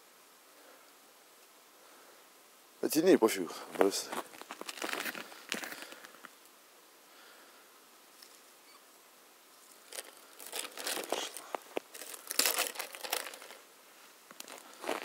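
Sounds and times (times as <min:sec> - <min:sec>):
snow and clothing crunching: 0:03.6 - 0:06.2, 0:09.7 - 0:15.0.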